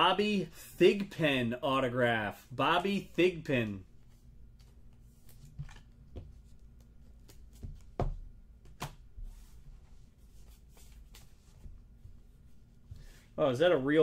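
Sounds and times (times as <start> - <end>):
cards rustling: 3.9 - 8.0.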